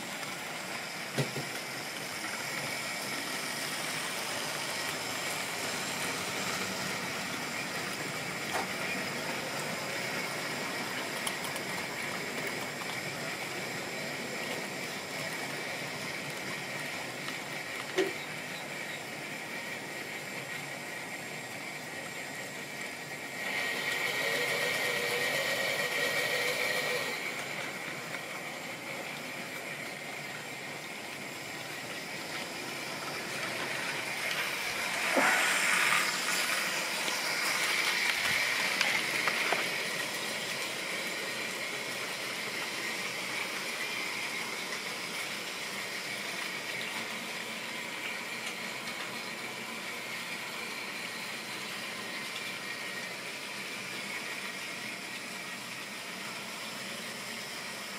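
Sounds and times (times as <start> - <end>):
model train motor whirring: 0.0 - 57.9.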